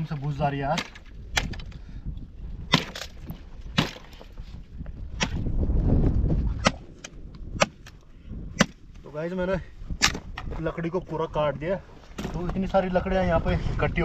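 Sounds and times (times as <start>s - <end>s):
wind on microphone: 0.0s - 14.0s
branches being chopped: 0.6s - 1.7s, 2.6s - 4.3s, 5.1s - 5.6s, 6.5s - 8.9s, 10.0s - 10.6s.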